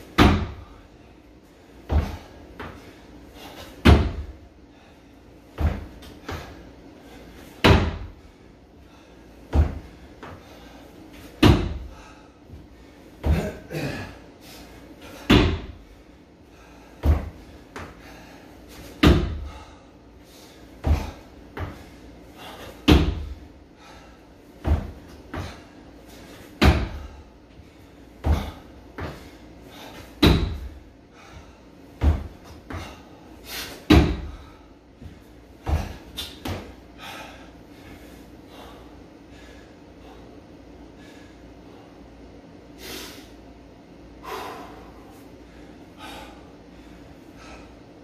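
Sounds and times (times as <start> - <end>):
heavy thuds on wooden box: 0.2 - 0.7, 3.8 - 4.3, 7.6 - 8.1, 11.4 - 11.9, 15.3 - 15.7, 17.0 - 17.4, 19.0 - 19.5, 22.8 - 23.3, 24.6 - 25.5, 26.6 - 27.1, 30.2 - 30.7, 32.0 - 32.9, 33.9 - 34.5
soft feet thumps: 1.8 - 4.4, 5.5 - 6.6, 9.4 - 13.9, 17.0 - 19.7, 20.8 - 23.5, 24.5 - 30.8, 31.4 - 36.8.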